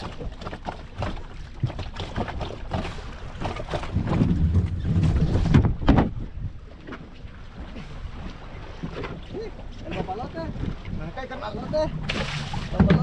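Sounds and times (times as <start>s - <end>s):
water slapping boat hull: 0.0s - 13.0s
wind on microphone: 3.4s - 6.8s, 7.6s - 13.0s.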